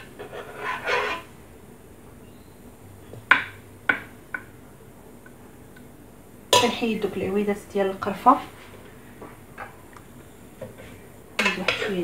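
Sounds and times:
cooking pot scraping: 0.0s - 1.3s, 10.8s - 12.0s.

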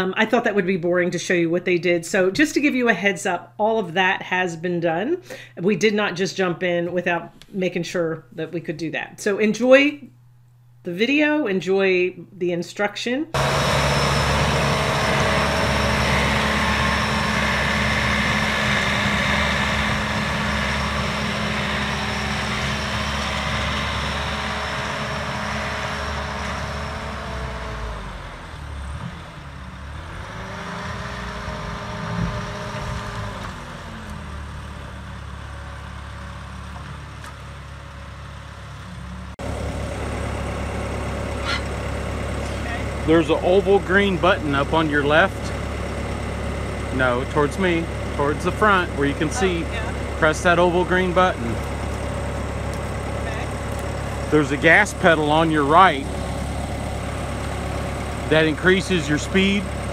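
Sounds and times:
diesel engine running: 4.9s - 6.3s, 13.3s - 59.9s.

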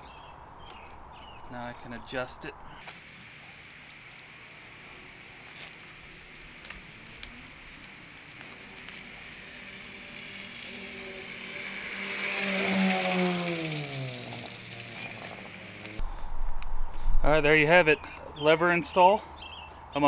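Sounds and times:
birds chirping: 0.0s - 16.0s, 17.5s - 20.0s
vehicle noise: 0.0s - 16.9s.

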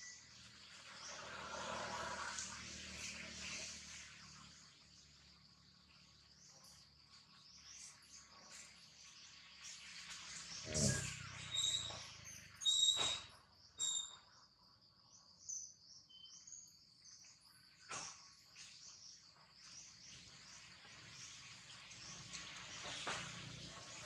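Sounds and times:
insect drone: 0.0s - 24.0s
birds chirping: 3.5s - 14.5s.

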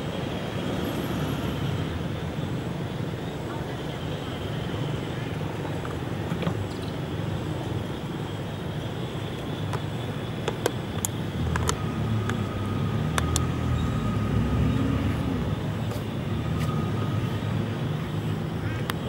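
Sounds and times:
vehicle engine rumble: 0.0s - 19.0s
sharp clicks: 9.7s - 13.8s.

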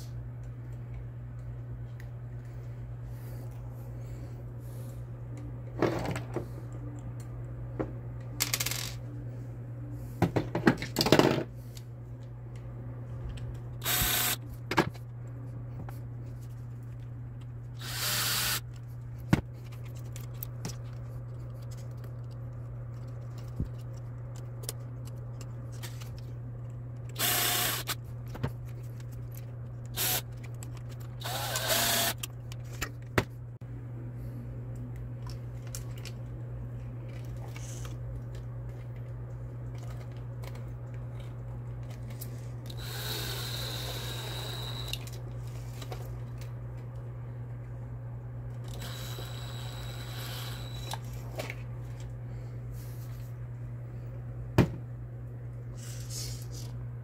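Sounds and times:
steady low hum: 0.0s - 57.0s
cordless drill spinning: 13.8s - 14.4s, 17.8s - 18.6s, 27.2s - 28.0s, 30.0s - 30.2s, 31.2s - 32.3s, 42.7s - 45.0s, 48.7s - 51.0s.

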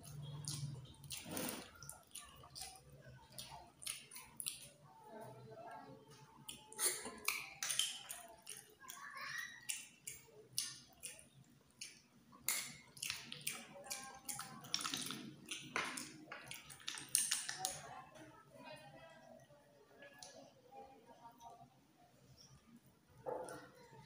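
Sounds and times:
chewing: 0.0s - 5.0s, 6.1s - 18.0s
sucking slurps from snail shells: 0.6s - 2.3s.

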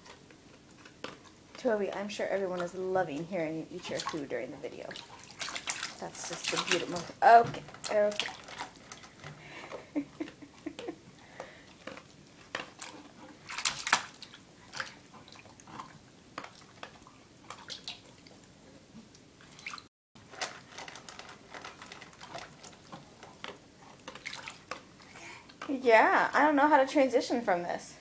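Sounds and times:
hands splashing water in metal bowl: 3.8s - 9.1s, 13.5s - 15.5s, 24.1s - 24.7s.

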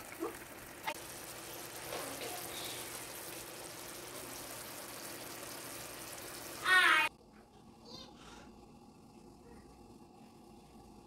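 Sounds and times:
sauce bubbling in a pan: 0.0s - 7.1s.

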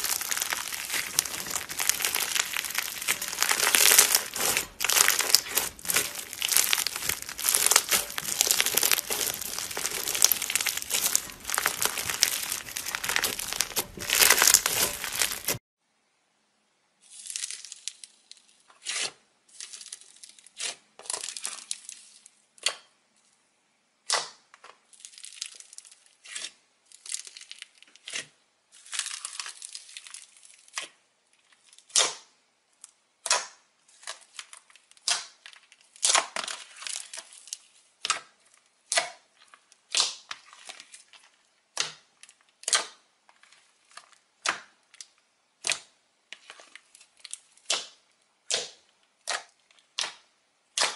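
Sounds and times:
slime crackling and crunching: 0.0s - 15.6s, 28.8s - 30.8s.

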